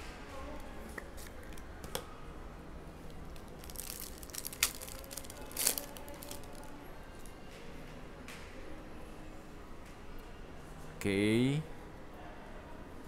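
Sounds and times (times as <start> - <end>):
foil wrapper crinkling and tearing: 3.3 - 6.7.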